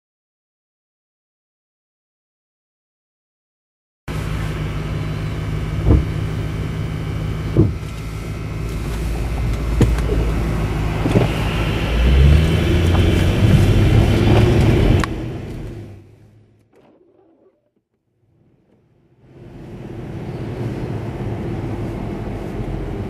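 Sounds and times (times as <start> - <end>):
road noise: 4.1 - 17.4, 18.3 - 23.0
car engine accelerating: 4.1 - 17.5, 19.2 - 23.0
sharp knocks: 5.8 - 6.2, 7.5 - 7.9.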